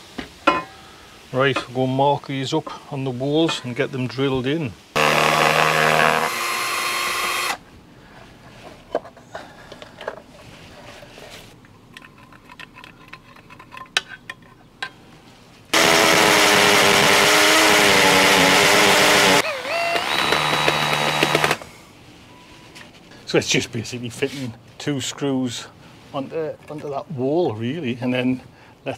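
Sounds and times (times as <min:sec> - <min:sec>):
electric drill boring into brick: 0:05.0 - 0:07.6, 0:15.8 - 0:21.6.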